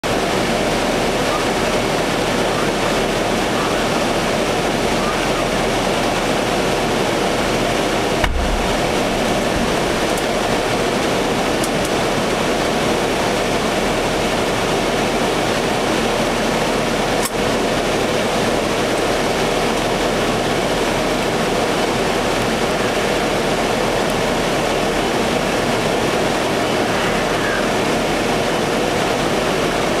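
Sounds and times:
steady rushing noise: 0.0 - 30.0
distant explosion thump: 8.2 - 10.0.

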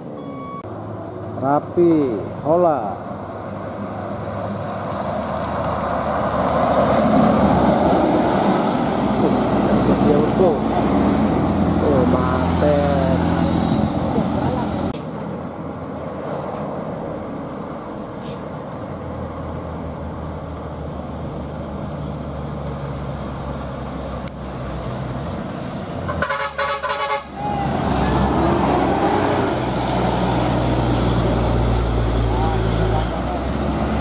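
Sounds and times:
bus passing close by: 0.0 - 34.0
engine and tyre rumble: 0.0 - 34.0
vehicle horn blasts: 26.1 - 27.4.

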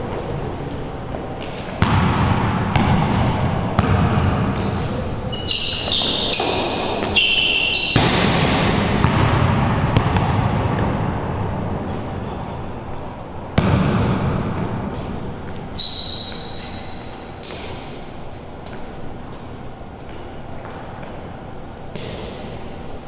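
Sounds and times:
basketball bouncing on court: 1.4 - 19.0
sneaker soles squeaking: 3.8 - 8.2, 14.9 - 21.0, 21.9 - 23.0.

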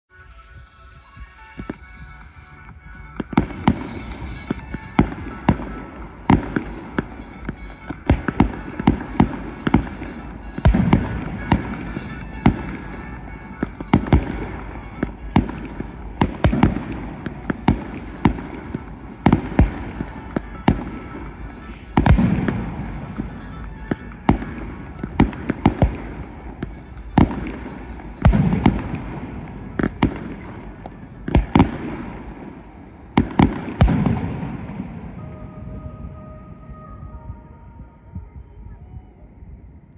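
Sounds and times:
low rumble and crackle: 2.2 - 39.9
firework shells bursting: 3.3 - 32.6.

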